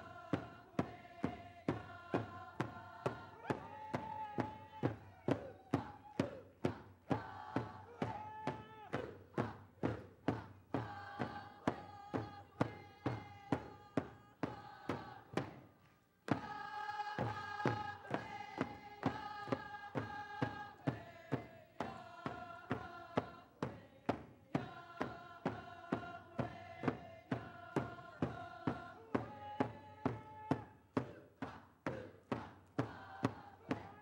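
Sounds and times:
group singing in chorus: 0.0 - 34.0
steady drumbeat: 16.3 - 34.0.

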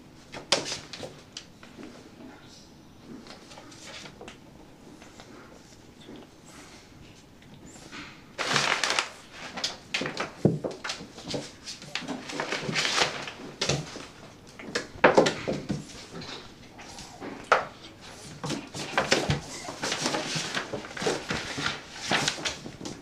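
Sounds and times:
plastic shower curtain rustling: 8.4 - 14.4, 18.0 - 23.0.

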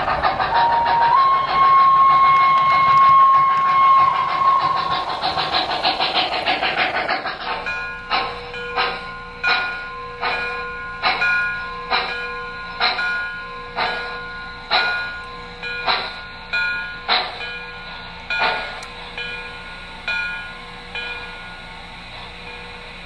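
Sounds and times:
model locomotive steam chuffs: 0.0 - 23.0.

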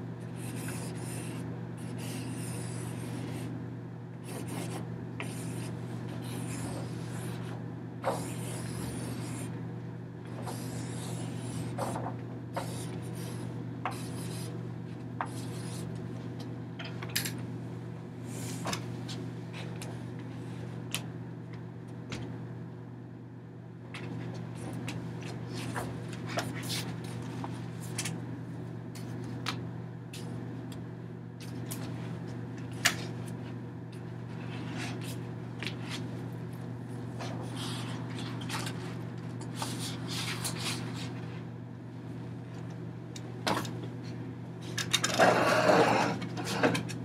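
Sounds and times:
low room hum: 0.0 - 47.0
rubbing and scraping on paper: 39.6 - 41.2.

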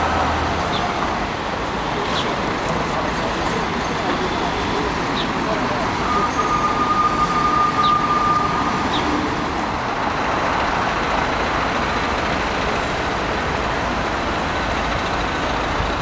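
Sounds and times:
road traffic rushing: 0.0 - 16.0.

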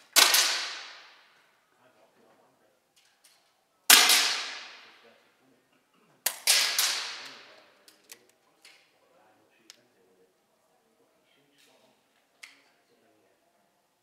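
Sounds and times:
air rifle shots echoing: 0.0 - 1.3, 3.9 - 5.0, 6.3 - 7.5.

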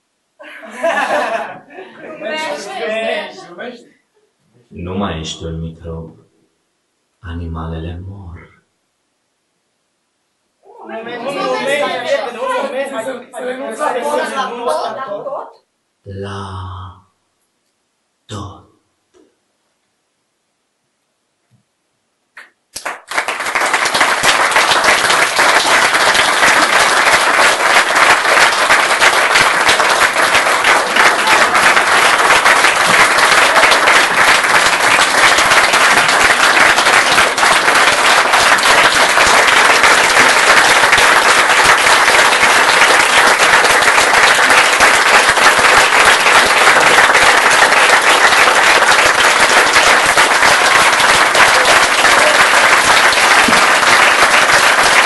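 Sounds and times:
audience applauding: 22.8 - 55.0.

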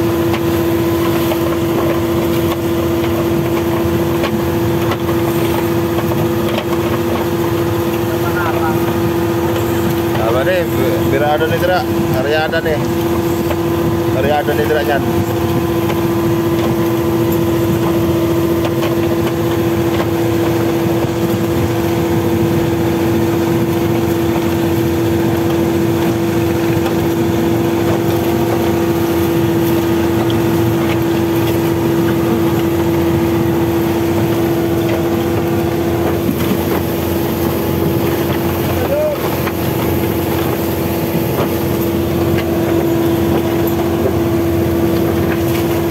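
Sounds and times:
boat engine droning: 0.0 - 45.9
wind: 0.0 - 45.9
water rushing: 27.3 - 45.9.

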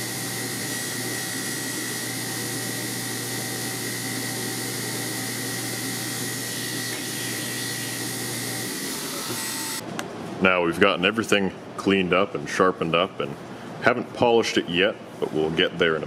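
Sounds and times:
belt grinder whining: 0.0 - 9.8.

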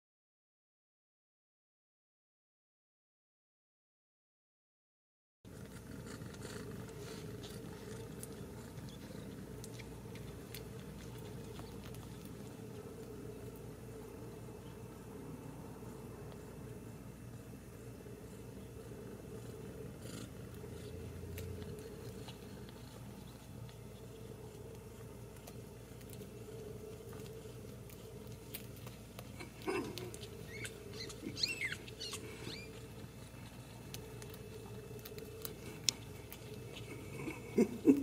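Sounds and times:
kittens nursing clicks and shuffles: 5.5 - 38.0
kittens mewing: 29.0 - 33.6.

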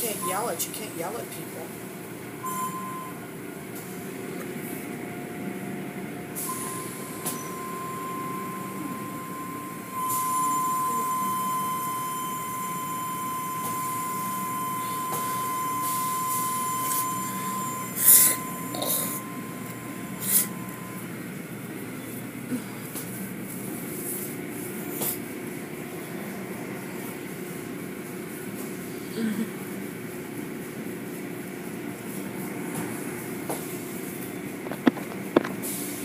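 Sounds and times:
car wash machinery rumble: 0.0 - 36.0
high steady whine: 2.0 - 22.5.

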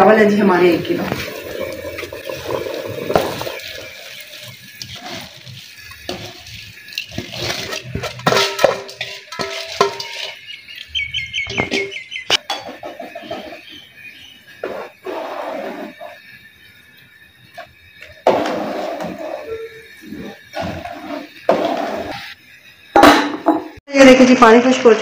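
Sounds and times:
rice pouring into broth: 1.1 - 8.0
bowl clinking against metal pot: 7.0 - 10.4.

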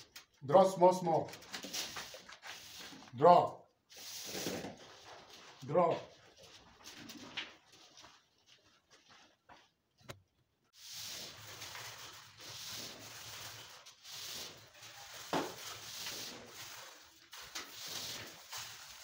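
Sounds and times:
cable scraping through conduit: 10.8 - 19.0.

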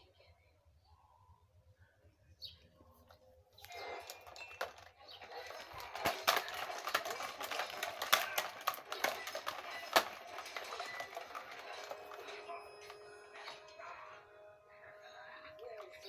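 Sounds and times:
toy car clicks and knocks: 3.6 - 13.6
plastic wrapping crinkling: 3.7 - 13.6.

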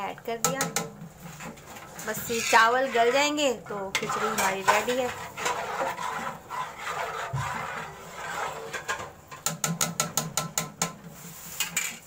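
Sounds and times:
metal utensil scraping a pot: 0.4 - 10.2, 11.1 - 12.0
rapid scrapes or taps: 3.9 - 12.0.

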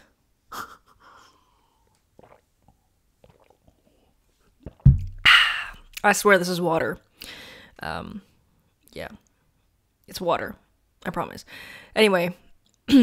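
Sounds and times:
person sipping and swallowing water: 1.6 - 6.0
loud low thump: 4.8 - 5.3.

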